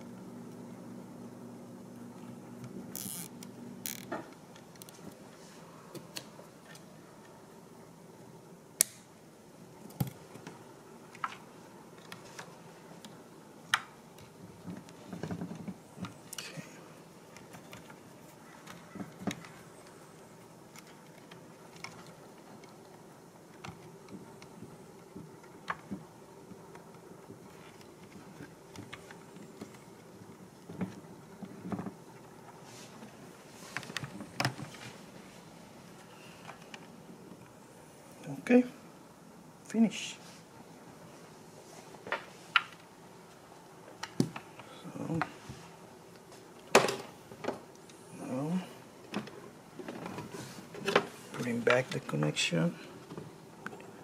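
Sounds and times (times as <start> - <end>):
wires rustling: 1.6 - 8.2, 8.8 - 54.0.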